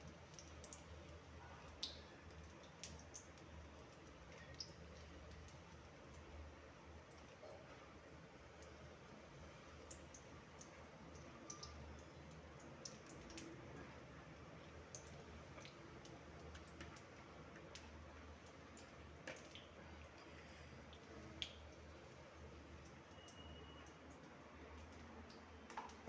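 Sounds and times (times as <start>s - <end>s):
oil popping and crackling: 0.0s - 6.4s, 9.7s - 22.2s, 24.8s - 26.0s
deep-frying sizzle: 0.0s - 26.0s.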